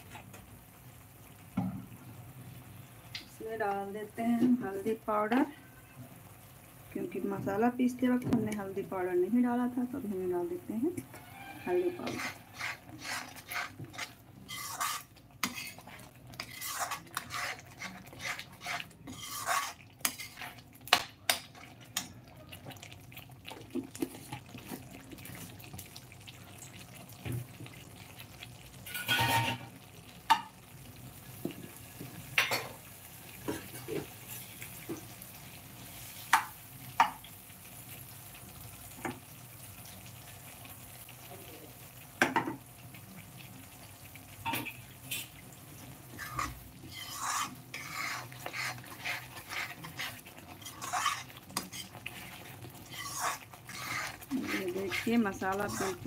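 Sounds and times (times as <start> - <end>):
paste sizzling: 6.4 - 56.0
spoon scraping metal pan: 11.0 - 21.7, 28.9 - 29.7, 44.5 - 45.4, 46.1 - 56.0.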